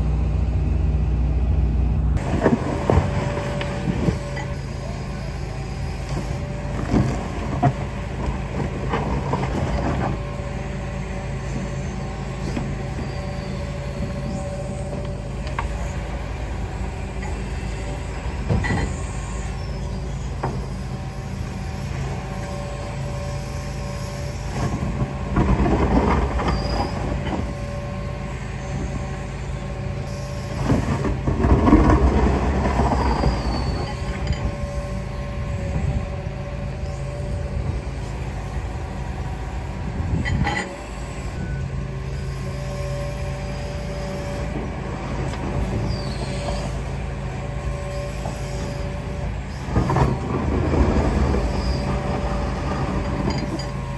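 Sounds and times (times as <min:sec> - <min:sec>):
excavator engine and hydraulics: 0:00.0 - 0:53.9
metal clanks from excavator bucket: 0:40.1 - 0:40.8, 0:52.8 - 0:53.9.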